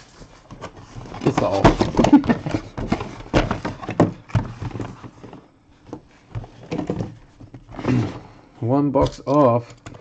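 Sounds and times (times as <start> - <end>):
cardboard rustling: 0.0 - 8.4
cardboard boxes tapping and knocking: 0.4 - 8.2.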